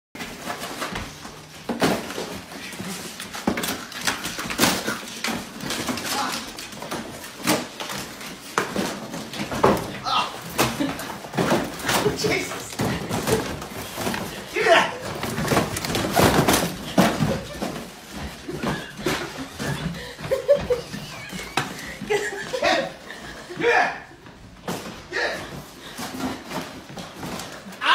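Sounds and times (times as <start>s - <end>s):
cardboard tearing and thumping: 0.2s - 21.0s
cardboard rustling: 0.2s - 23.5s, 24.3s - 27.9s.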